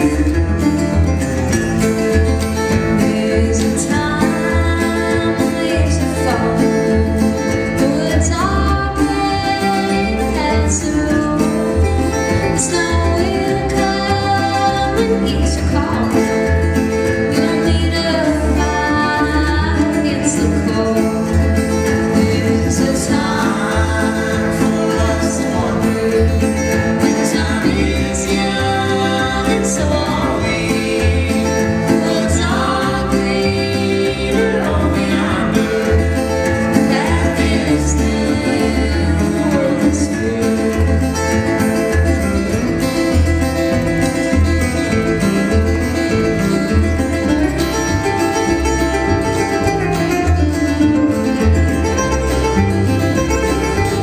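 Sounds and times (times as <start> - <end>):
picked resonator guitar: 0.0 - 54.0
plucked double bass: 0.0 - 54.0
strummed acoustic guitar: 0.0 - 54.0
person singing: 2.0 - 42.3.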